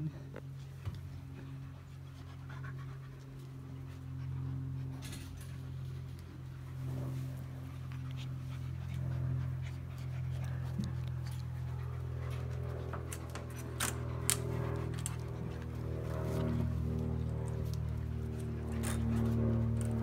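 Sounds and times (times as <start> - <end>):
steady low hum: 0.0 - 20.0
dogs panting: 0.4 - 20.0.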